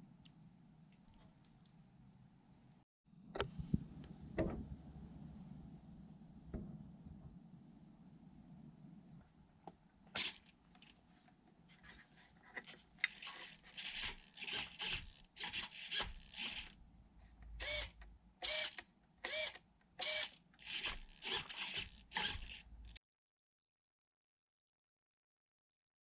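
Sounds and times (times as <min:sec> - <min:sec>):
servos whirring: 0:10.2 - 0:10.5, 0:13.0 - 0:16.8, 0:17.6 - 0:23.0.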